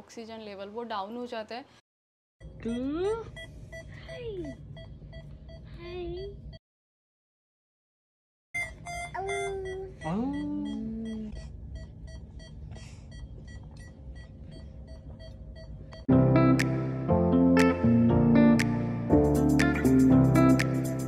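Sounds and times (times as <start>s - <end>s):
patient monitor beeping: 2.6s - 6.6s, 8.6s - 16.1s
guitar music: 16.1s - 21.0s.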